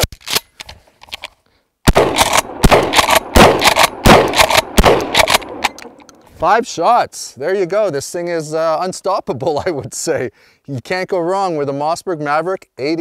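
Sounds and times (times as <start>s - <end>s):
shotgun shots: 1.9s - 6.0s.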